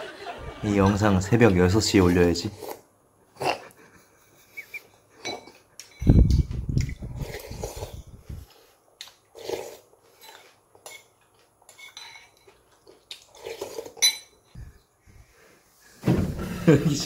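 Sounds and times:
utensils clinking against a bowl: 5.2s - 7.4s, 10.2s - 12.9s, 13.5s - 14.5s.

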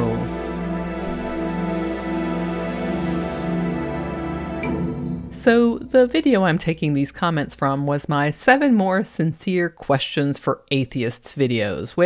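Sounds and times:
soft slow background music: 0.0s - 6.8s.

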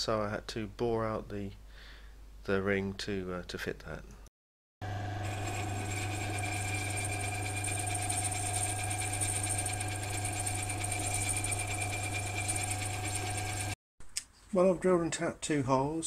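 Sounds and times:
lathe whines: 4.8s - 13.8s
metal lathe motor hum: 4.8s - 13.8s.

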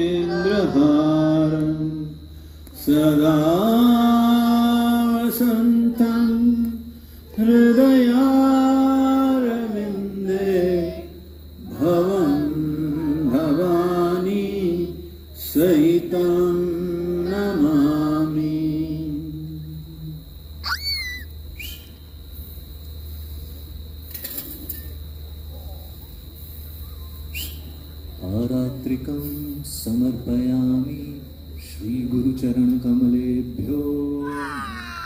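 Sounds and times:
mantra chanting: 2.8s - 6.7s.

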